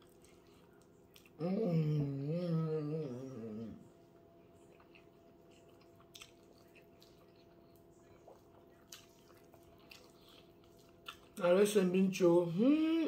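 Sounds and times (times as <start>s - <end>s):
low steady hum: 0.0s - 13.0s
mouth clicks and smacks chewing: 4.6s - 11.4s.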